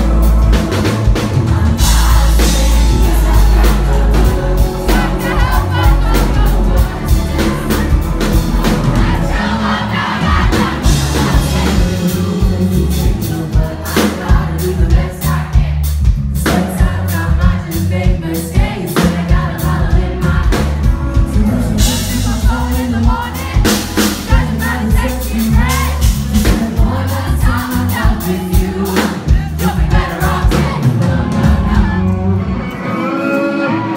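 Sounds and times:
crowd noise: 0:00.0 - 0:33.9
live rock band playing: 0:00.0 - 0:33.9
man singing into a microphone: 0:01.4 - 0:08.8, 0:10.9 - 0:15.5, 0:21.0 - 0:31.8.

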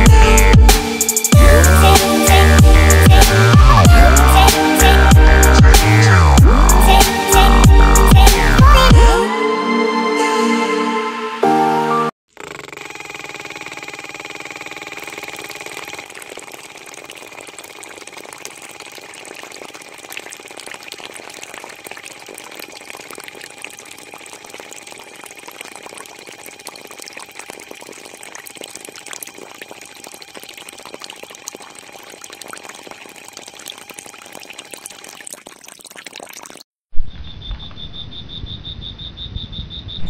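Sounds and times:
electric water pump whining: 0:12.3 - 0:35.3
water trickling into tank: 0:13.4 - 0:36.7.

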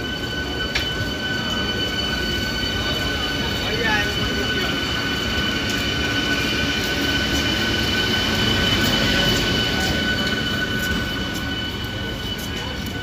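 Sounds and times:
constant high whine: 0:00.0 - 0:13.0
train wheels rumbling on rails: 0:00.0 - 0:13.0.

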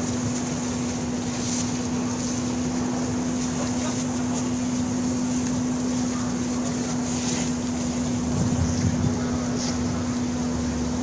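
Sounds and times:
constant hiss: 0:00.0 - 0:11.0
steady engine drone: 0:00.0 - 0:11.0
wind rumble on microphone: 0:07.5 - 0:10.4.

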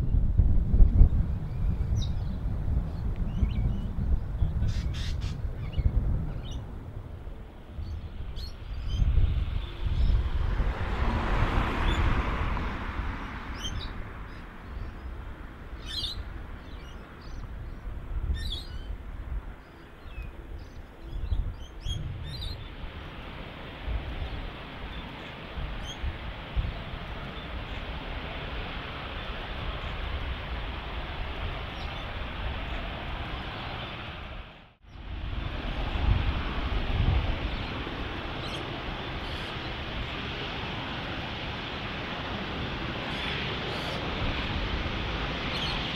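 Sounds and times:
birds chirping: 0:01.4 - 0:06.7, 0:07.7 - 0:10.3, 0:13.5 - 0:23.3, 0:24.2 - 0:28.0, 0:43.0 - 0:44.1, 0:45.4 - 0:45.9
jet engines taxiing: 0:05.4 - 0:45.9.

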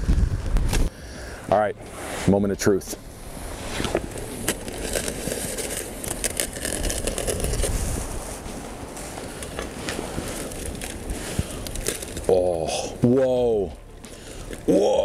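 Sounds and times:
aluminium foil crinkling and tearing: 0:04.1 - 0:12.8.

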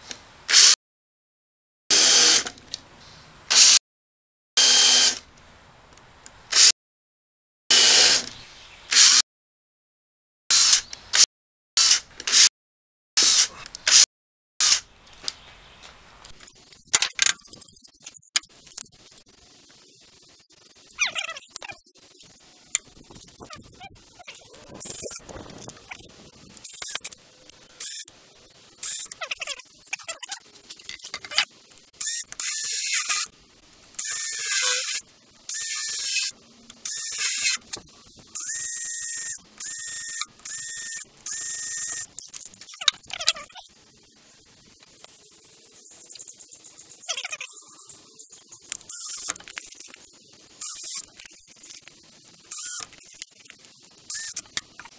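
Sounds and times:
cordless drill boring into wood: 0:01.9 - 0:02.5, 0:04.6 - 0:05.2, 0:07.7 - 0:08.3, 0:08.9 - 0:09.2, 0:28.8 - 0:29.2, 0:32.0 - 0:33.3, 0:34.0 - 0:37.8, 0:38.4 - 0:42.1, 0:48.9 - 0:49.4, 0:52.5 - 0:53.0, 0:54.1 - 0:54.5.

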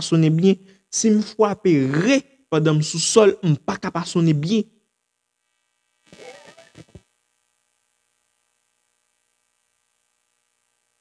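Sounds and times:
faint electrical mains hum: 0:00.0 - 0:11.0.

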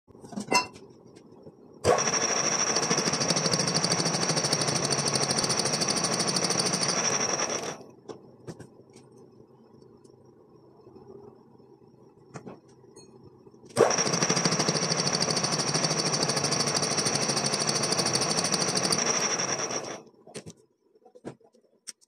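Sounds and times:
cutting machine rapid hammering: 0:01.9 - 0:07.8, 0:13.8 - 0:20.0.

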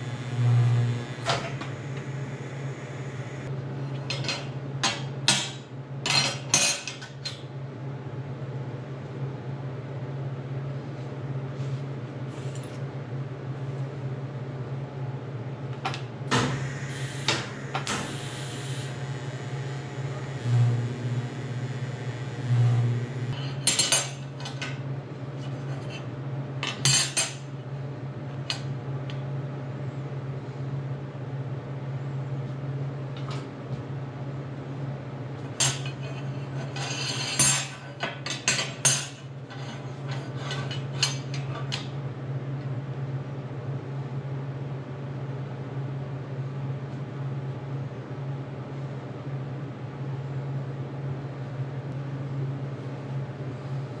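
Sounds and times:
low hum: 0:00.0 - 0:03.5, 0:16.5 - 0:23.4.

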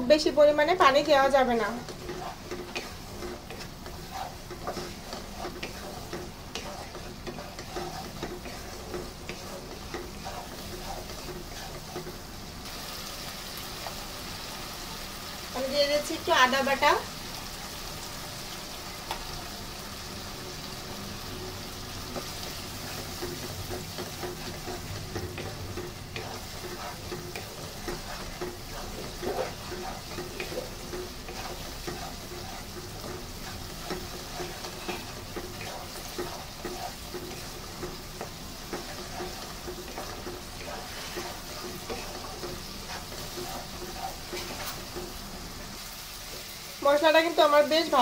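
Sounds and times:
spatula scraping and tapping pan: 0:00.0 - 0:12.6, 0:19.0 - 0:19.4, 0:21.3 - 0:45.6
paste sizzling in oil: 0:00.0 - 0:48.0.

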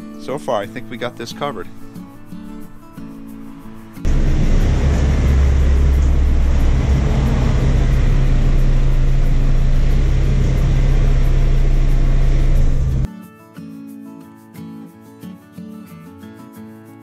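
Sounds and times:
car engine droning: 0:04.0 - 0:13.1.

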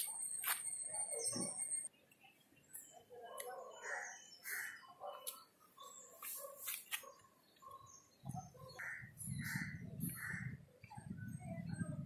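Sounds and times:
crows cawing: 0:03.9 - 0:04.9.

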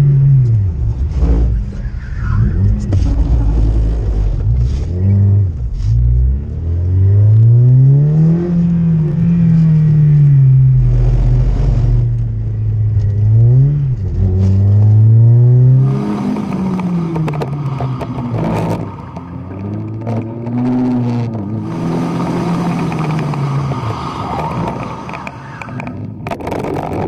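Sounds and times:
car engine revving: 0:00.0 - 0:27.0
wind noise: 0:15.8 - 0:27.0.

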